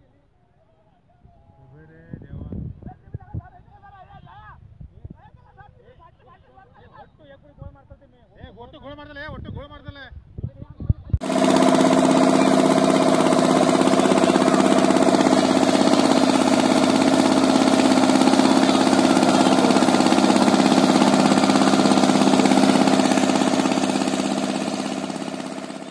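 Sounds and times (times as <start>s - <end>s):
boat engine running: 11.2s - 25.9s.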